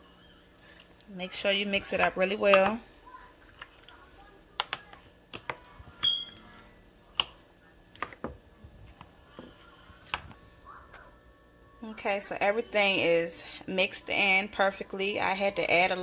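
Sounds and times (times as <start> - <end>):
spoon stirring thick beans: 0.0 - 11.0.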